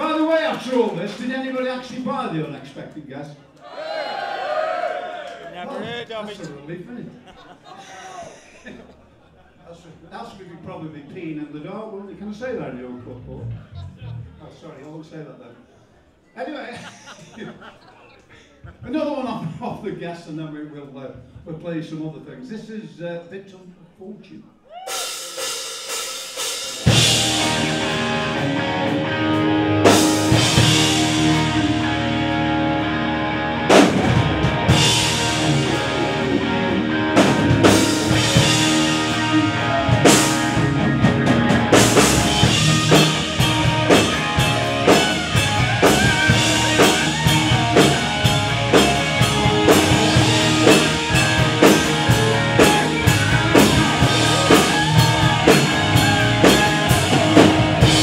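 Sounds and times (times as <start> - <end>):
live rock band playing: 24.9 - 58.0.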